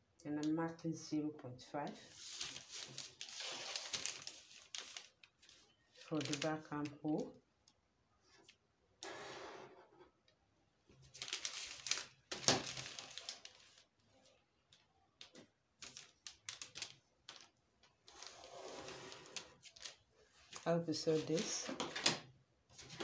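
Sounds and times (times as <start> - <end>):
paper rustling: 2.0 - 7.0, 10.9 - 23.0
plastic ruler scraping on paper: 18.1 - 19.6.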